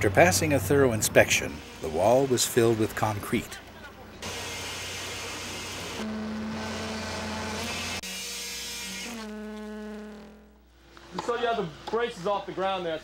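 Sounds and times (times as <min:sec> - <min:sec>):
concrete vibrator humming: 0:00.0 - 0:12.4.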